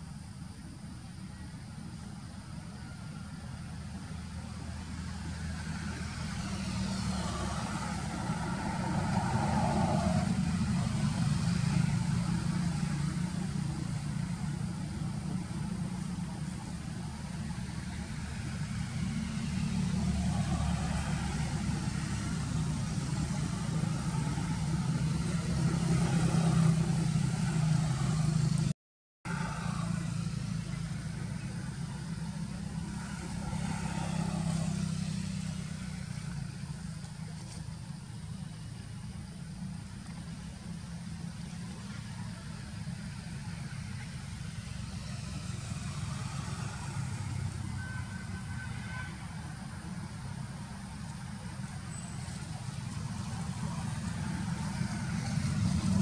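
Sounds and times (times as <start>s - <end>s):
motor traffic rumble: 0.0s - 56.0s
faint voices: 29.3s - 56.0s.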